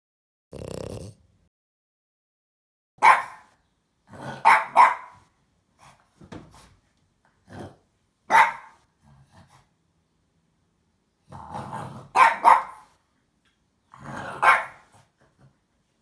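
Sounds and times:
dog barking: 3.0s - 3.6s, 4.2s - 5.3s, 8.3s - 8.8s, 12.1s - 13.0s, 14.3s - 14.9s.

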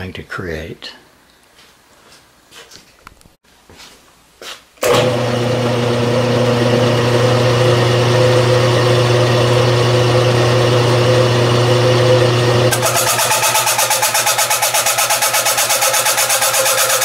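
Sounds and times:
milling machine hum: 4.8s - 17.0s
cutter chattering through sheet metal: 12.7s - 17.0s.

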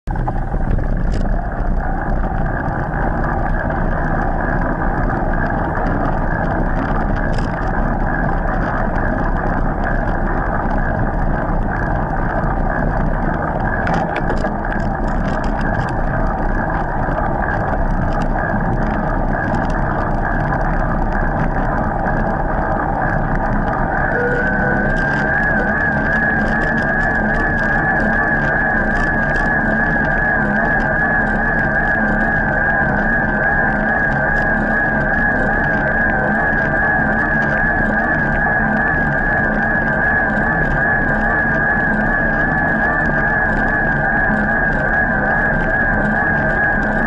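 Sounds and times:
wind rushing on microphone: 0.0s - 47.0s
bike tyre noise on pavement: 0.1s - 47.0s
light clicks and rattles: 13.3s - 22.2s.

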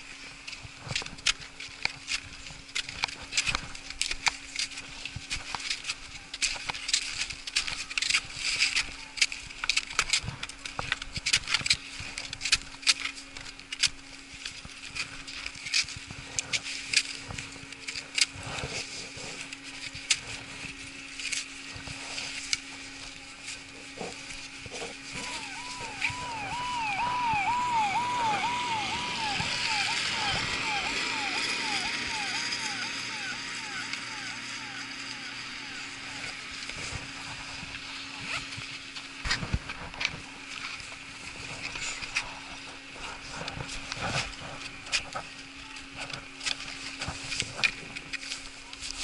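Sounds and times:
skis and poles clacking on snow: 0.0s - 29.0s, 35.2s - 49.0s
steady low hum: 0.0s - 49.0s.

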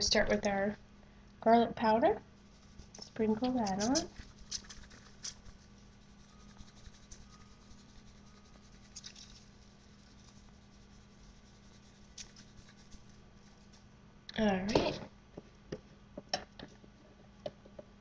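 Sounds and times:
low steady hum: 0.0s - 18.0s
spice shaker ticking: 2.5s - 13.8s.

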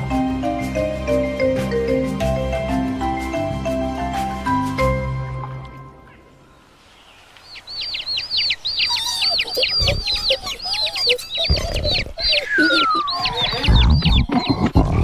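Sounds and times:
marimba music: 0.0s - 6.1s
birds chirping: 0.0s - 15.0s.

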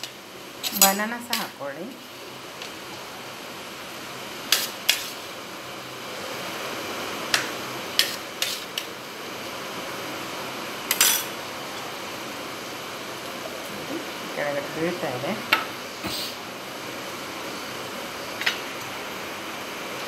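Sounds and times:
metal spoon clinking on dishes: 0.6s - 1.5s, 10.9s - 11.4s.

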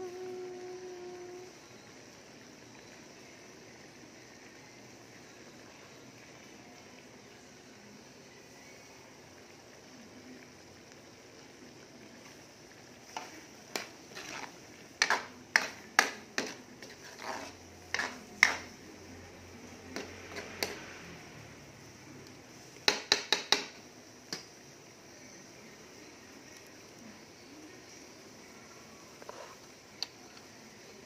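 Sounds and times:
food simmering: 0.0s - 31.0s
spatula scraping a metal wok: 13.1s - 18.8s, 20.0s - 20.8s.

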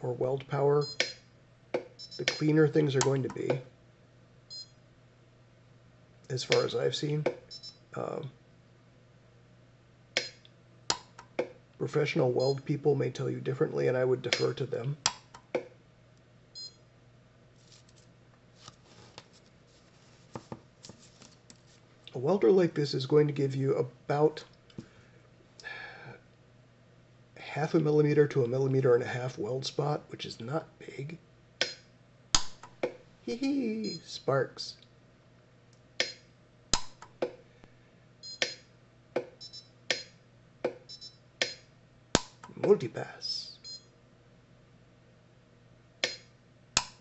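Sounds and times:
high beeps: 2.0s - 2.4s, 33.8s - 34.1s, 39.4s - 39.7s, 40.9s - 41.2s, 43.6s - 43.9s.

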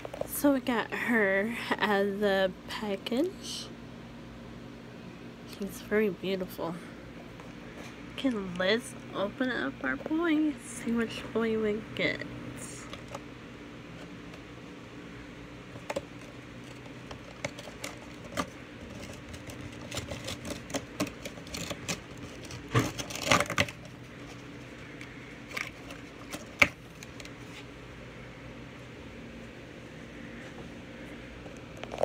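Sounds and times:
crinkly packaging rustle: 15.8s - 27.7s.

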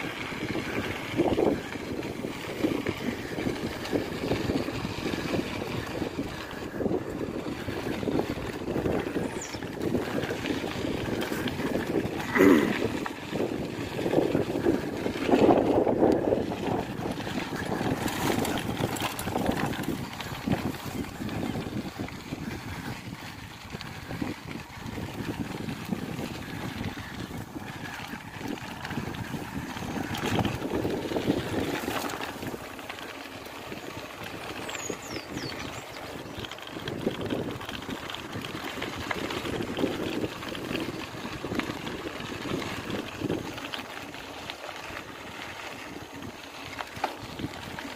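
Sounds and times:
bicycle rolling on dirt trail: 0.0s - 47.9s
wind buffeting the microphone: 0.0s - 47.9s
bike knocks and rattles: 14.1s - 21.8s.

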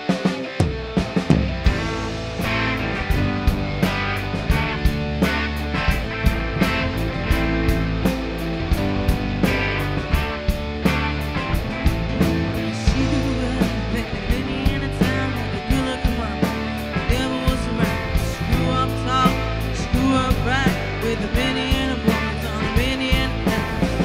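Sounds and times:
drum beat: 0.0s - 14.9s
bass guitar: 0.0s - 24.0s
electric guitar: 0.0s - 24.0s
person singing: 12.5s - 24.0s.

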